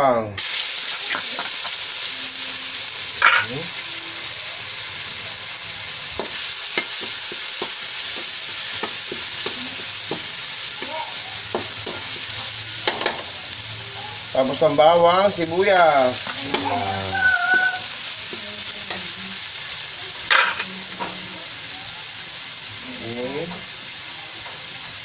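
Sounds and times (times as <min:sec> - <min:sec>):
garlic sizzling in a wok: 0:00.4 - 0:25.0
spatula scraping and tapping pan: 0:06.2 - 0:10.9, 0:11.5 - 0:13.3.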